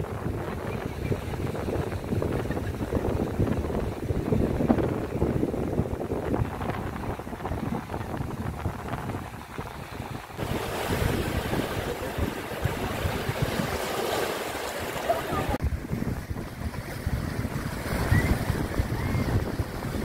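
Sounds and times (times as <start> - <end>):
wind buffeting microphone: 0.0 - 20.0
small waves breaking on shore: 0.2 - 20.0.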